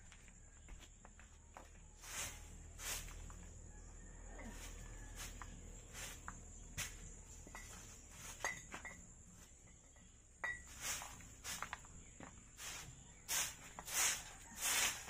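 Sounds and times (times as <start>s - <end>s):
hand broom sweeping dirt: 1.6s - 3.6s, 4.3s - 9.6s, 10.4s - 15.0s.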